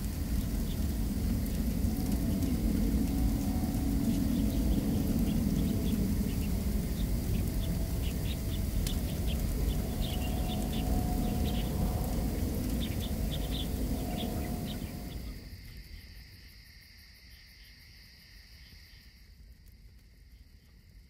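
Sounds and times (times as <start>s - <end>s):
low rumbling noise: 0.0s - 15.8s
high insect trill: 0.0s - 21.0s
insects chirping: 0.0s - 21.0s.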